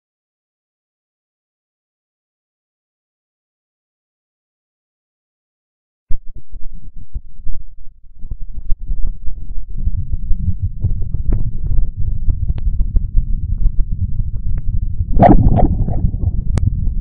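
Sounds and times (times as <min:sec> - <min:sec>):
low rumble with crackling: 0:06.1 - 0:17.0.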